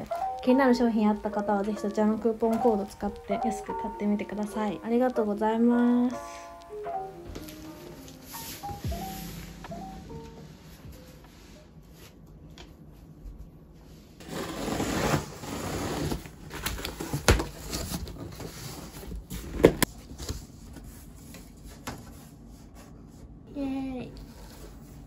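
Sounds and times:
cardboard flaps scraping: 14.2s - 20.6s.

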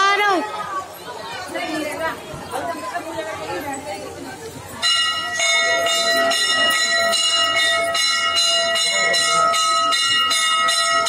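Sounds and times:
metal bell ringing: 4.7s - 11.0s.

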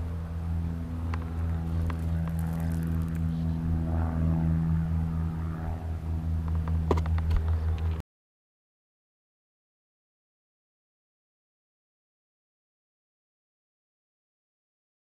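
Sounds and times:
low engine hum: 0.0s - 8.0s.

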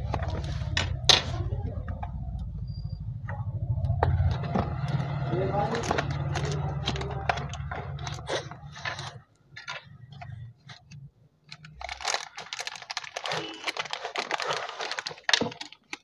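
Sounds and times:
low hum: 0.0s - 8.6s
packaging clicks and crinkles: 5.7s - 16.0s.

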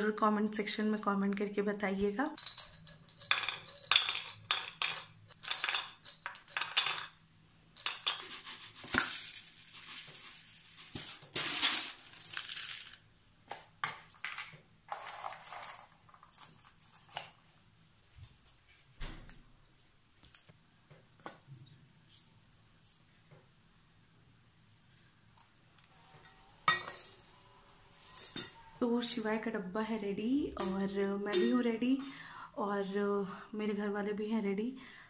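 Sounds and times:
plastic containers clattering: 2.4s - 7.2s
nuts rattling into plastic container: 7.8s - 13.0s, 14.2s - 16.4s.

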